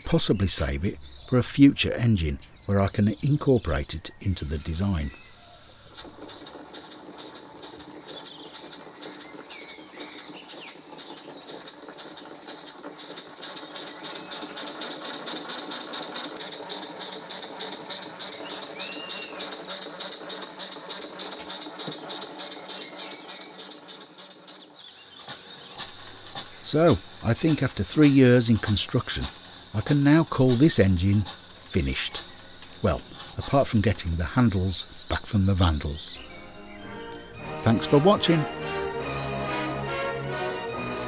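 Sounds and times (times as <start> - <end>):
model engine ticking: 4.4 - 36.2.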